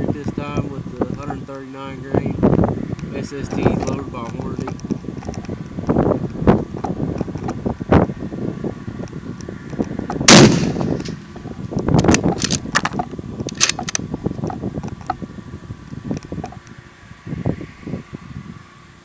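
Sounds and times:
sharp clicks: 9.0s - 15.2s
rifle shot with echo: 10.3s - 11.2s.

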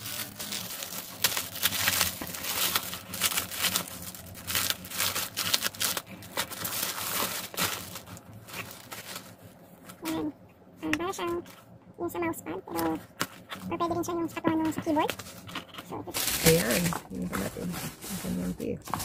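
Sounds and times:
plastic bag crinkling: 0.0s - 10.3s, 14.7s - 19.0s.

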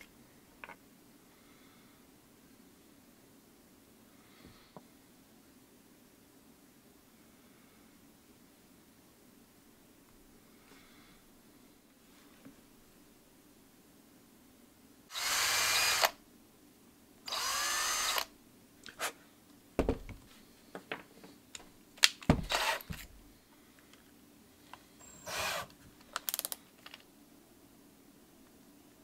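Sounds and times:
cordless drill drilling into wood: 15.1s - 16.2s, 17.3s - 18.3s, 22.4s - 22.9s, 25.2s - 25.7s.

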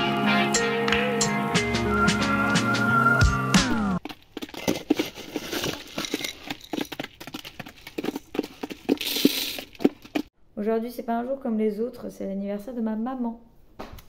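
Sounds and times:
background music: 0.0s - 4.0s
hens pecking plastic feeder: 6.2s - 10.3s.

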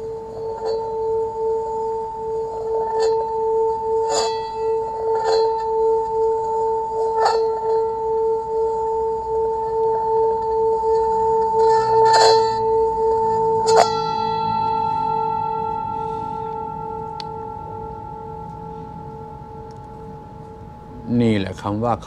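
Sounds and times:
singing bowl ringing: 0.0s - 22.0s.

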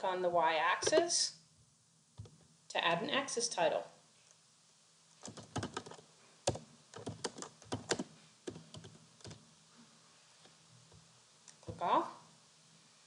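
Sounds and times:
computer keyboard typing: 5.2s - 9.4s.

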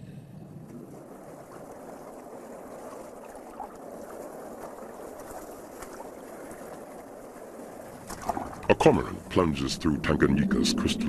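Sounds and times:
underwater rushing water: 0.2s - 11.0s
bubbles: 7.9s - 9.1s.

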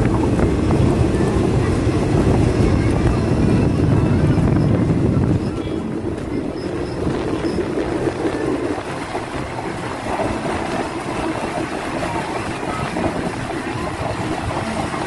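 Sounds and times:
rushing air: 0.0s - 15.0s
train rumbling on track: 0.0s - 15.0s.

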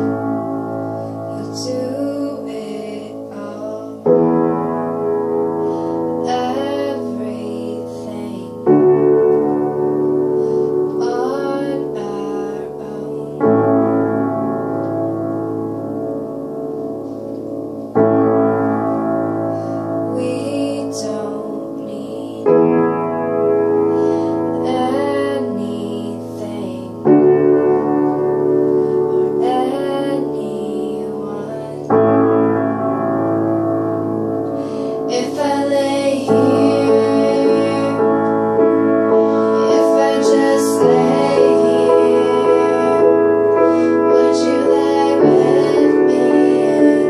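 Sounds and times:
piano chords: 0.0s - 47.0s
woman singing: 1.2s - 4.5s, 6.2s - 9.6s, 10.9s - 13.8s, 20.0s - 22.8s, 24.0s - 28.2s, 29.0s - 32.1s, 34.6s - 38.4s, 39.2s - 47.0s.

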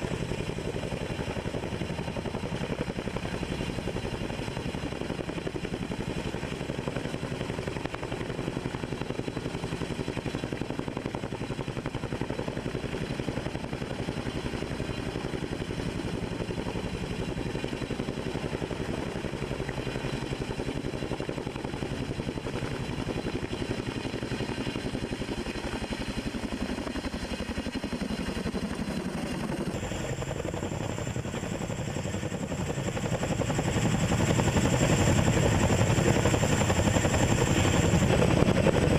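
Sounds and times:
helicopter rotor chop: 0.0s - 38.9s.

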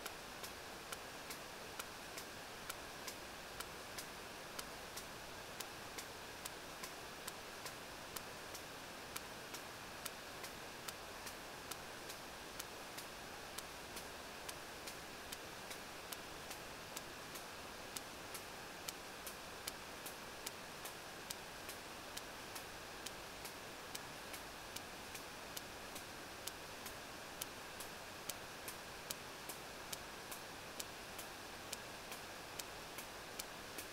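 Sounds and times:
steady hiss: 0.0s - 33.9s.

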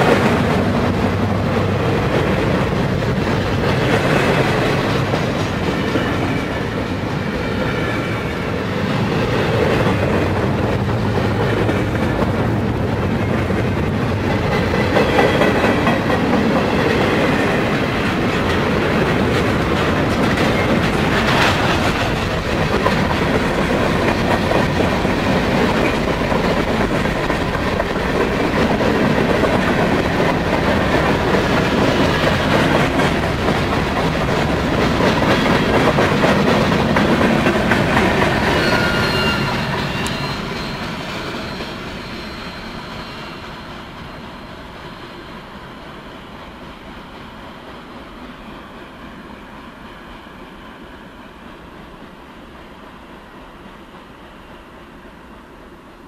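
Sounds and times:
freight train rumbling past: 0.0s - 56.0s
wheels clacking over rails: 9.0s - 41.8s.

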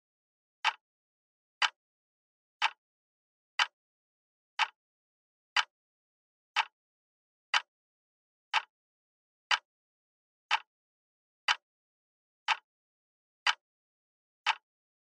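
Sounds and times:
clock ticking: 0.6s - 0.8s, 2.6s - 2.8s, 4.6s - 4.8s, 6.5s - 6.7s, 7.5s - 7.7s, 8.5s - 8.7s, 10.5s - 10.7s, 14.4s - 14.6s.

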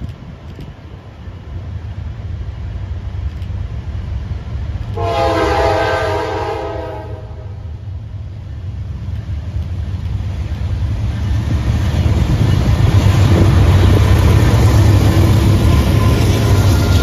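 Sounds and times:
locomotive rumble: 0.0s - 17.0s
locomotive horn: 5.0s - 7.6s.

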